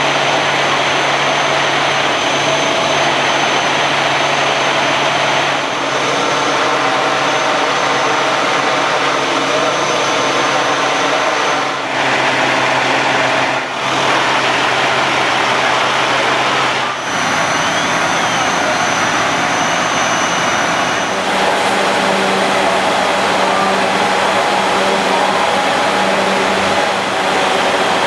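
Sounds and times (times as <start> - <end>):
fire truck engines droning: 0.0 - 28.0
thin high whine: 0.0 - 28.0.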